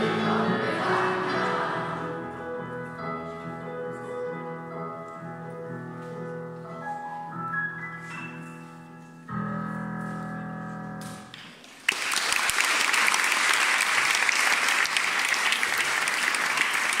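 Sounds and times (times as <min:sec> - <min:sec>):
audience applauding: 0:11.5 - 0:17.0.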